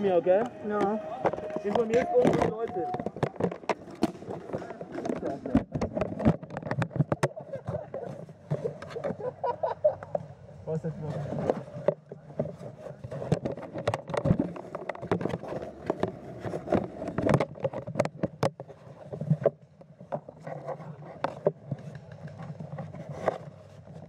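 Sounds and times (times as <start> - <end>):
footsteps and gear rustling: 0.0 - 9.3.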